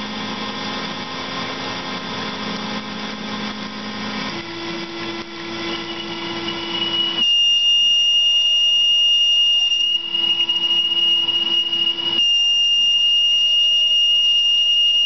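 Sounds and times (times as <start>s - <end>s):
spindle hum: 0.0s - 15.0s
boring bar chatter squeal: 5.5s - 15.0s.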